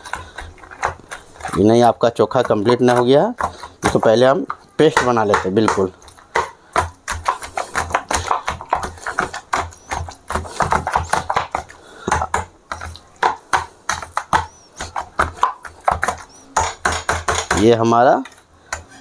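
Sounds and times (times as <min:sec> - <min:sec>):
potato masher clinking on metal bowl: 0:00.0 - 0:06.1.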